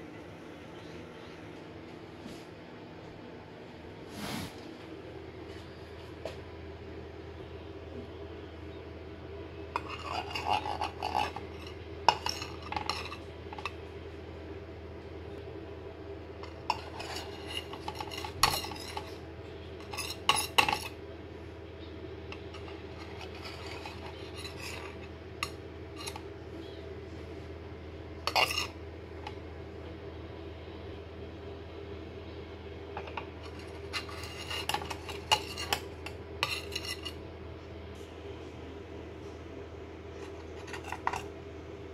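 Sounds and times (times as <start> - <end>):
steady low hum: 0.0 - 41.9
knife scraping metal plate: 9.8 - 13.8, 16.4 - 19.2, 19.8 - 21.0, 22.3 - 26.2, 28.3 - 28.8, 33.0 - 37.2, 40.2 - 41.3.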